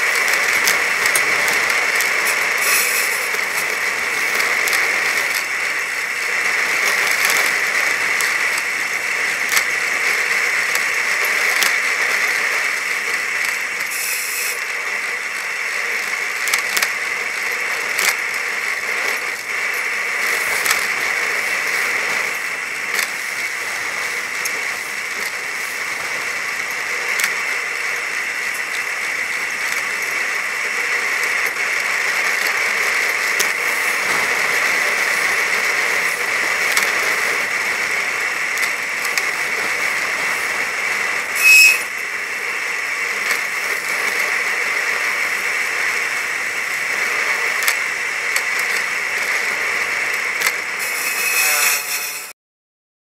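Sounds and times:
faint high whine: 33.1 - 43.9, 50.8 - 52.3.

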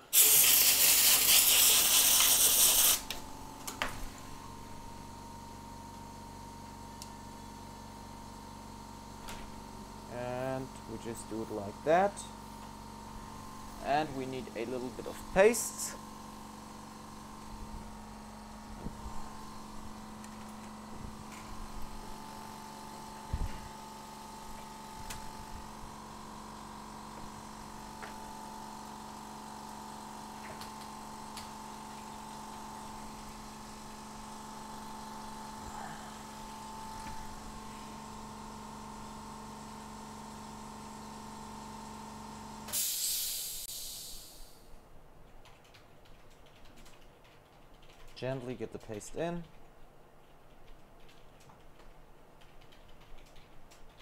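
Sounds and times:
electrical hum and whine: 0.0 - 54.0
short hiss: 0.1 - 3.0, 42.7 - 44.6.

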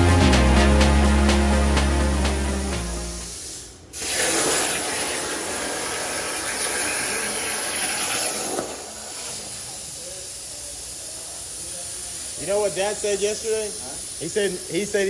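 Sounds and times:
background music: 0.0 - 3.4
plasma cutting torch hissing: 3.1 - 15.0.

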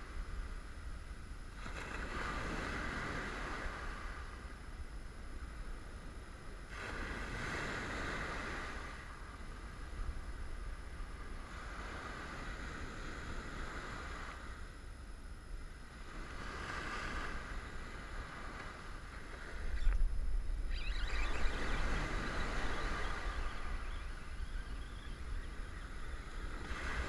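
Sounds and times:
deep rumble of surf: 0.0 - 27.0
ocean waves breaking: 1.5 - 4.5, 6.7 - 10.1, 11.2 - 14.6, 15.9 - 27.0.

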